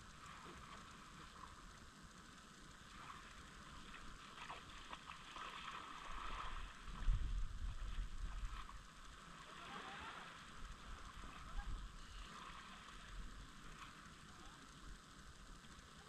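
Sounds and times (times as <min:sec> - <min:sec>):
small waves washing onto beach: 0:02.8 - 0:14.9.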